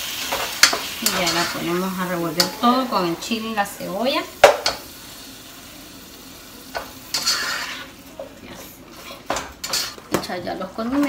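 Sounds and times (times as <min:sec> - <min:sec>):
meat sizzling in a pot: 0:00.0 - 0:11.0
spatula scraping and knocking pot: 0:07.1 - 0:07.9.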